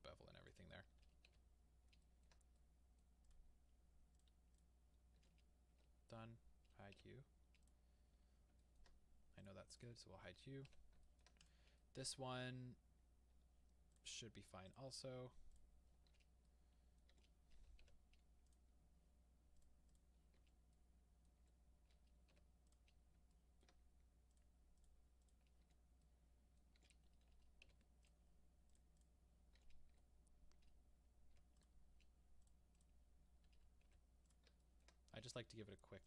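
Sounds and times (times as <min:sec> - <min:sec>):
low steady hum: 0:00.0 - 0:36.0
computer keyboard and mouse clicks: 0:00.3 - 0:02.6.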